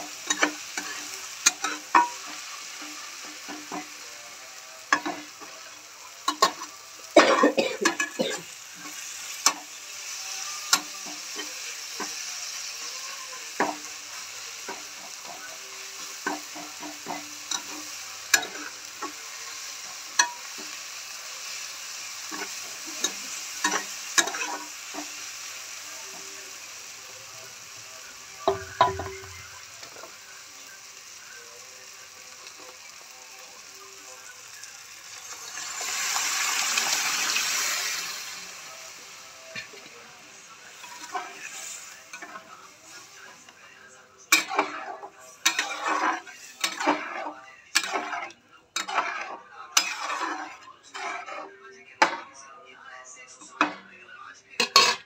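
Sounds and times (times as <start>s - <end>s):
tomatoes sizzling in a pan: 0.0s - 55.0s
spatula scraping and clanking on pan: 0.1s - 4.0s, 6.2s - 12.3s, 16.0s - 20.8s, 22.2s - 25.2s, 40.7s - 43.0s, 44.3s - 52.3s.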